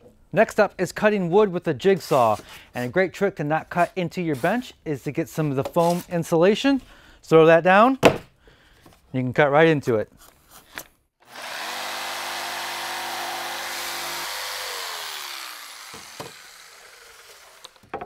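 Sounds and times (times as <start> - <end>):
jigsaw cutting plywood: 11.2 - 18.0.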